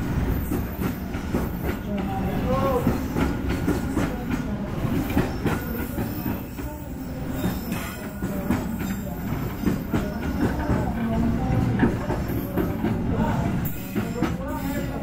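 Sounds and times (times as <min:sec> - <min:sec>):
low train rumble: 0:00.0 - 0:15.0
train wheels clattering over joints: 0:07.4 - 0:15.0.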